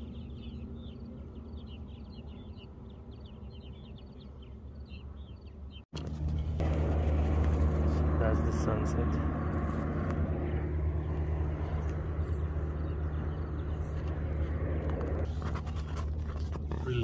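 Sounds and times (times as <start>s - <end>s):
small birds chirping: 0.0s - 6.6s, 7.9s - 17.0s
low motor hum: 0.0s - 17.0s
low rumble: 6.0s - 15.3s.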